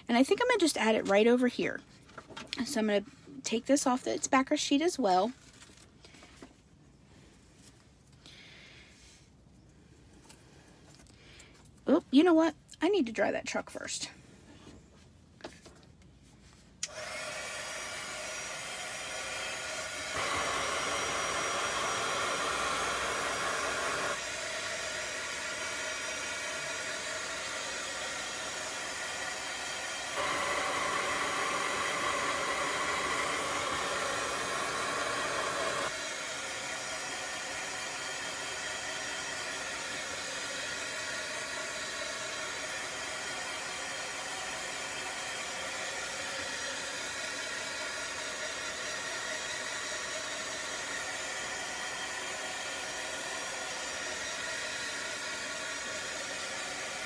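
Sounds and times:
handheld dryer blowing: 16.8 - 57.0.

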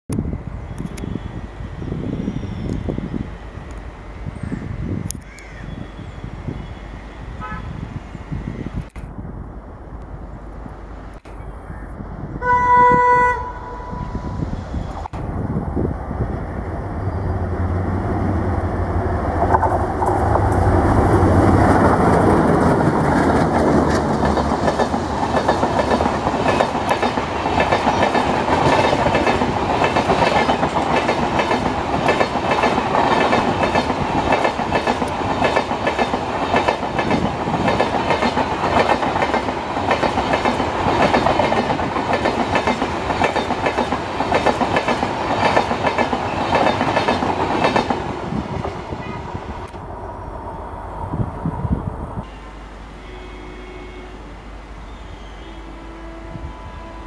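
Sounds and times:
diesel locomotive engines droning: 0.1 - 57.0
train wheels clickety-clack: 19.4 - 48.8.

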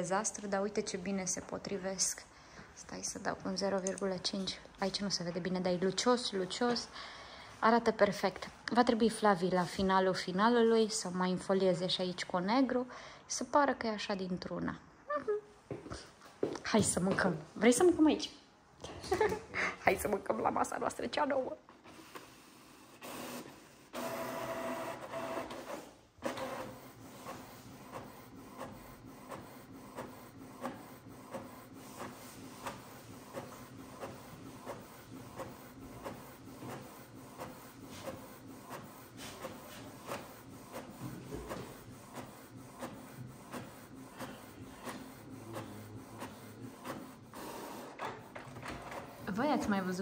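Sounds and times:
printer printing: 21.8 - 50.0.

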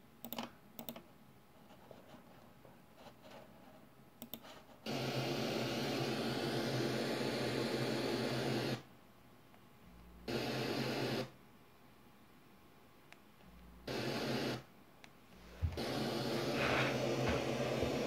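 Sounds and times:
radio hiss with low hum: 15.5 - 18.0.

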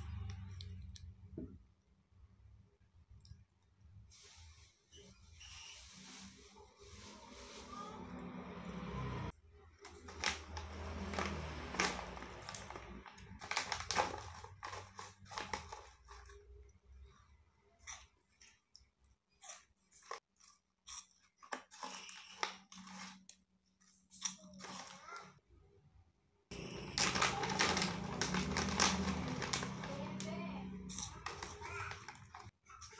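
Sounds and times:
crunching and chewing snacks: 9.7 - 17.2, 26.5 - 32.9
snack bag crinkling: 9.9 - 16.5, 26.5 - 32.5.

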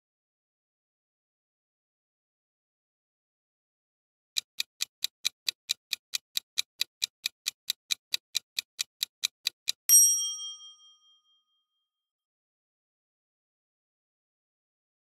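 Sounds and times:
clock ticking: 4.4 - 10.1
bright bell chime: 9.9 - 11.7.

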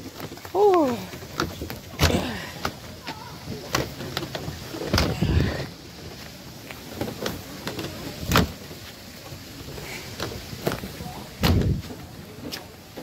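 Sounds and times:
footsteps down stairs: 0.0 - 13.0.

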